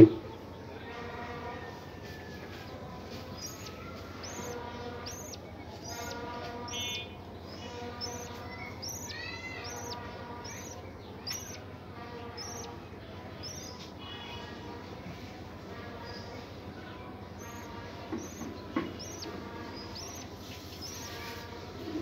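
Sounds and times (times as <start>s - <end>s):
budgerigars chirping: 3.1s - 12.8s, 13.4s - 13.9s, 17.3s - 21.4s.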